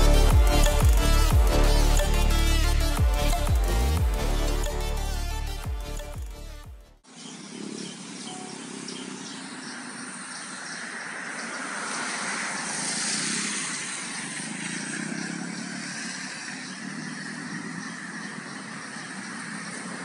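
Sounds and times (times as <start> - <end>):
street traffic hiss: 7.0 - 20.0
vehicle passing: 7.6 - 20.0.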